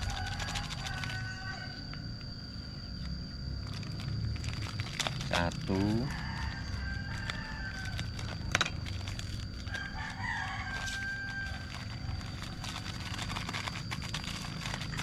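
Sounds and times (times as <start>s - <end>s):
plastic sachets crinkling: 0.0s - 1.5s, 3.6s - 15.0s
rooster crowing faintly: 0.0s - 2.1s, 5.7s - 8.5s, 9.6s - 12.9s.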